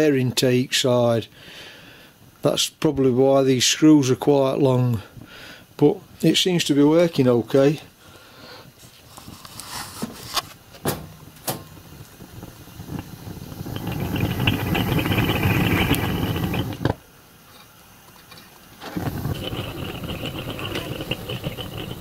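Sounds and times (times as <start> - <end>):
gas burner flame rushing: 8.5 - 17.1, 18.7 - 22.0.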